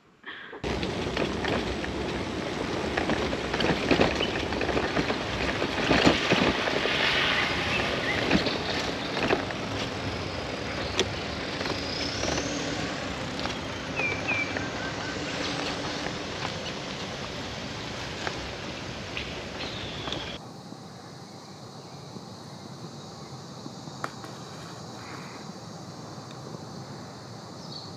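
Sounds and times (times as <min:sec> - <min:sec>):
wind rushing over microphone: 0:00.6 - 0:27.9
bicycle clicks and knocks: 0:24.0 - 0:24.6.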